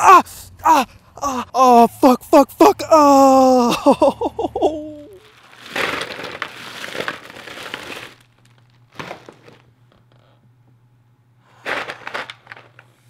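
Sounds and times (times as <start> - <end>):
man groaning: 0.0 - 5.2
plastic bag crinkling: 5.1 - 10.0, 11.5 - 13.0
ice cubes clattering into basin: 5.2 - 9.6, 11.6 - 12.9.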